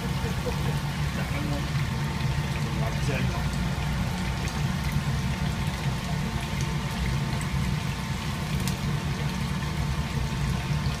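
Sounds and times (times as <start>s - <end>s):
background hum and hiss: 0.0s - 11.0s.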